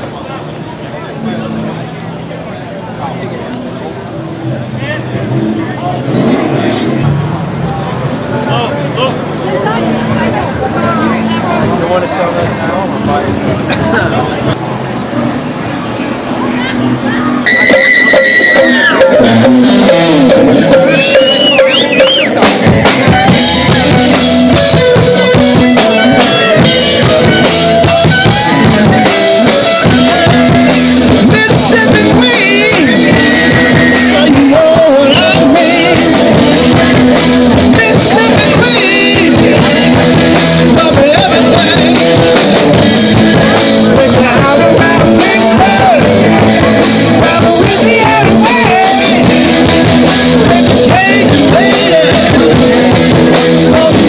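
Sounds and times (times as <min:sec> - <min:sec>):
bass guitar: 0:00.0 - 0:54.0
electric guitars: 0:00.0 - 0:54.0
drum kit: 0:17.4 - 0:54.0
person singing: 0:28.2 - 0:54.0.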